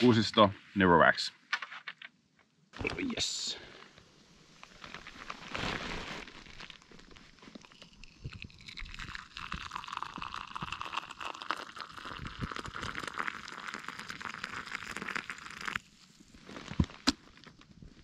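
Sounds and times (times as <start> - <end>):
coffee pouring into a wooden cup: 7.5 - 15.9.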